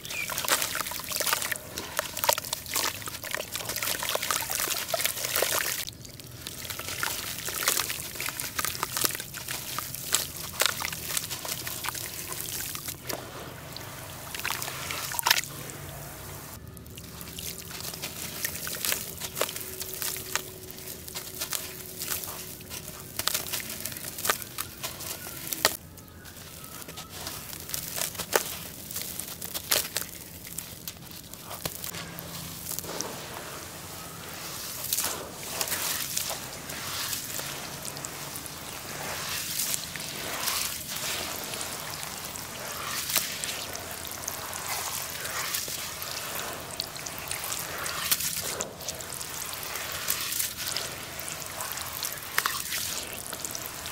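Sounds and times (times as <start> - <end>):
water trickling and sloshing: 0.0 - 25.8, 26.4 - 53.9
wet charcoal crunching: 0.0 - 53.9.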